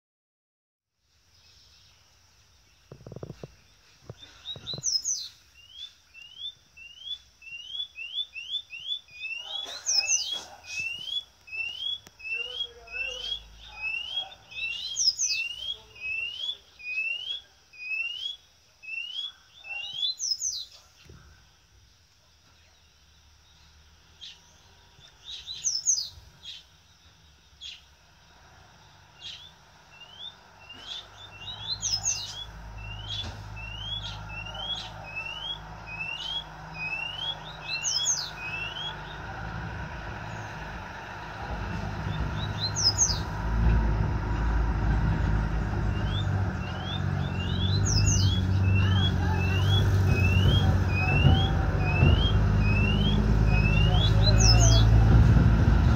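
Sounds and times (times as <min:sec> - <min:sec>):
bird singing rising whistles: 0:04.4 - 0:20.7, 0:25.2 - 0:26.2, 0:29.2 - 0:39.2, 0:42.0 - 0:43.4, 0:45.7 - 0:55.0
low rumble: 0:38.9 - 0:55.9.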